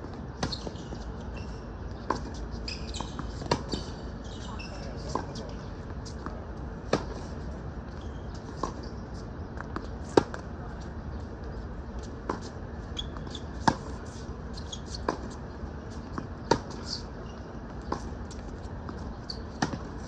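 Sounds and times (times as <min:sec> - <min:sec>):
tennis ball bouncing: 0:02.0 - 0:04.0, 0:06.0 - 0:07.3, 0:09.6 - 0:10.5, 0:12.0 - 0:20.0
racket hitting tennis ball: 0:03.1 - 0:03.9, 0:13.5 - 0:14.2, 0:18.9 - 0:20.0.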